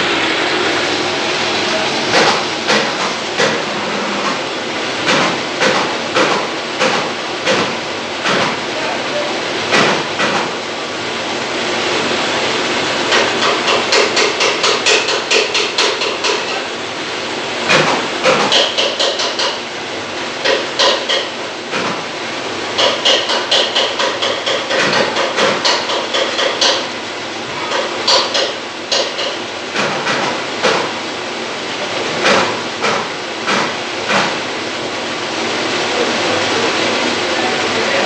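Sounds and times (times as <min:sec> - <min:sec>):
metal lathe running: 0:00.0 - 0:05.1.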